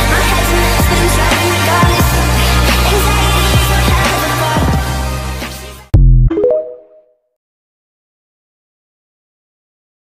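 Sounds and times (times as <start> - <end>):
deep bass hit: 6.0 - 6.3.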